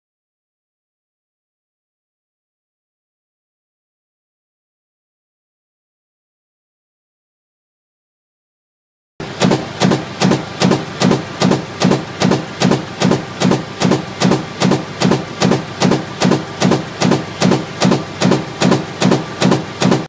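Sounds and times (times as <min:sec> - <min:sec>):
stamping press knocking: 0:09.2 - 0:20.0.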